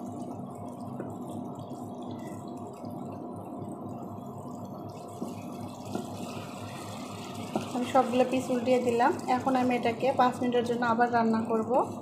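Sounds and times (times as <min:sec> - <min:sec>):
gravy simmering and bubbling: 0:00.0 - 0:12.0
wooden spatula turning food: 0:05.2 - 0:08.9.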